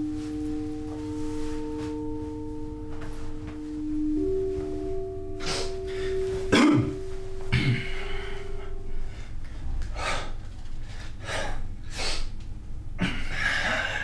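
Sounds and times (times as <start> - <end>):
sustained music tone: 0.0 - 14.0
man breathing hard: 7.6 - 12.4.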